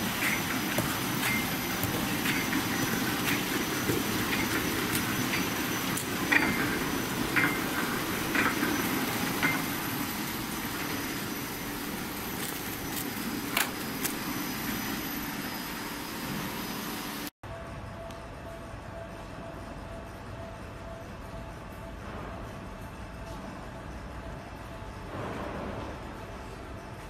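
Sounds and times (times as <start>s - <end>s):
machine clacks: 0.0s - 14.3s
packaging machine hum: 0.0s - 17.3s.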